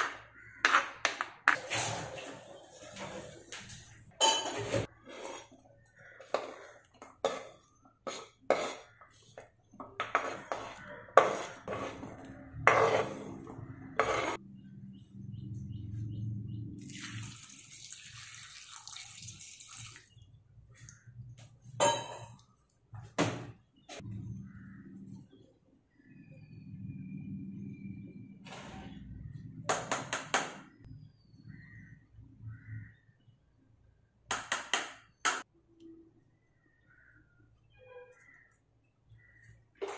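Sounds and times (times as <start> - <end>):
water pouring into pot: 16.8 - 20.1.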